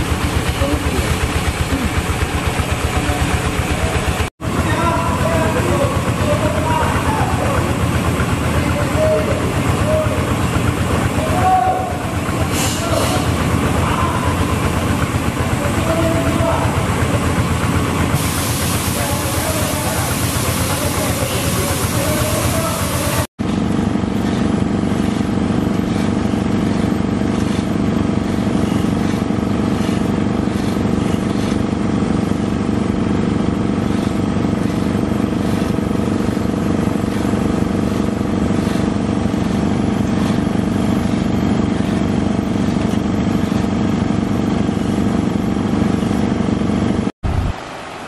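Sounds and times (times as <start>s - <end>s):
engine running steadily: 0.0s - 48.0s.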